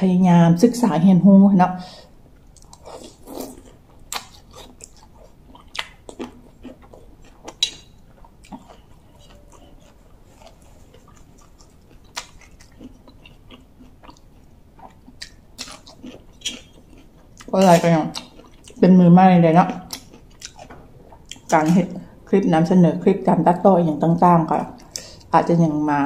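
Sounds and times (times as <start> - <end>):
person chewing and eating: 2.4 - 18.8, 19.6 - 21.6
wet mouth smacks and crunches: 4.1 - 6.4.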